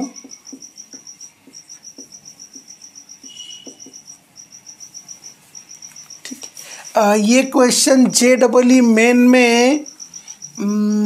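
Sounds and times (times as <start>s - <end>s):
marker squeaking on whiteboard: 0.0s - 8.4s
cricket chirping: 0.0s - 11.0s
faint knocks: 0.1s - 4.1s.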